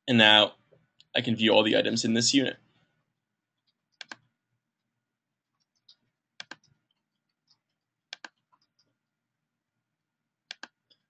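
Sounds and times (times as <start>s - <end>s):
computer mouse clicks: 3.9s - 4.3s, 5.6s - 6.8s, 7.4s - 8.9s, 10.5s - 11.0s.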